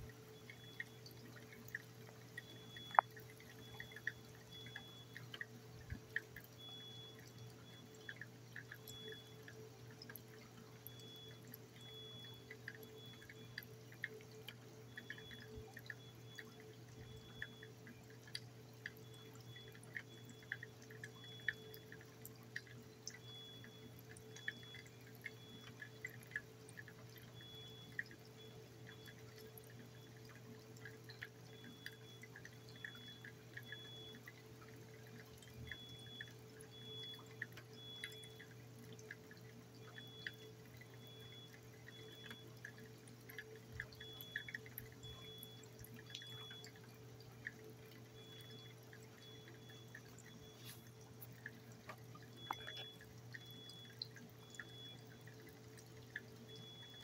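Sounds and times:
faint steady hum: 0.0 - 57.0
rain dripping: 0.0 - 57.0
faint high chirp: 2.4 - 5.3, 48.2 - 50.9, 52.4 - 55.1.

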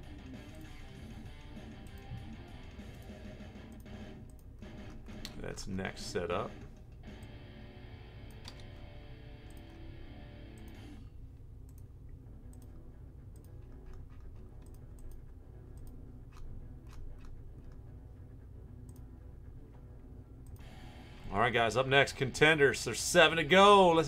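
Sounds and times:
background music: 0.0 - 11.1, 12.2 - 24.0
steady low hum: 0.0 - 24.0
mouse and keyboard clicks: 13.4 - 17.8.

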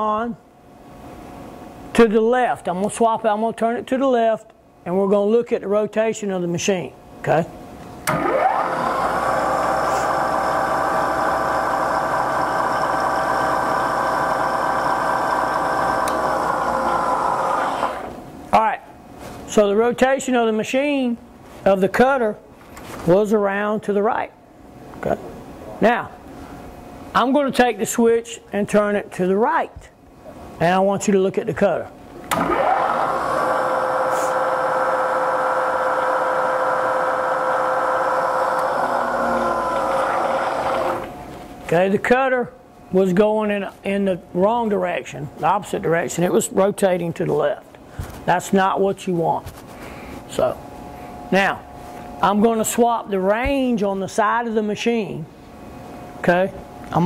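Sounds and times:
milling machine spindle whine: 8.1 - 18.2, 32.3 - 41.2
motor switch click: 16.0 - 16.3.

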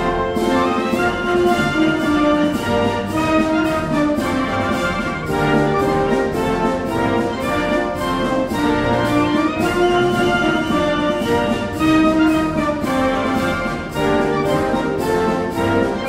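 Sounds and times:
brass band playing a march: 0.0 - 16.0.

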